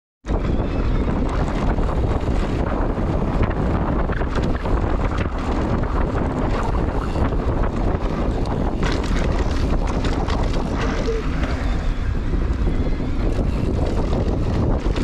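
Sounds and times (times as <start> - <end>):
wind rushing over microphone: 0.2 - 15.0
low rumble: 0.3 - 15.0
small clicks and rattles: 4.1 - 11.6.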